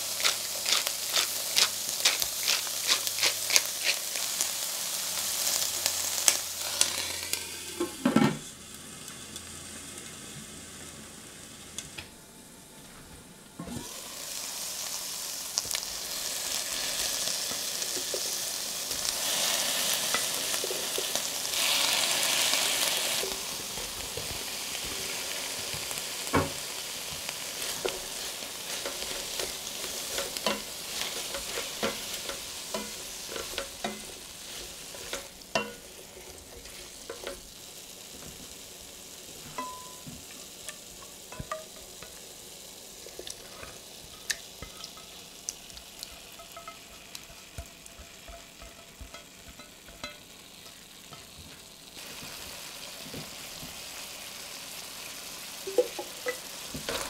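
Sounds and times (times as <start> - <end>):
food sizzling in a pan: 0.0 - 12.0, 13.6 - 57.0
spatula clicking against pan: 44.3 - 51.3.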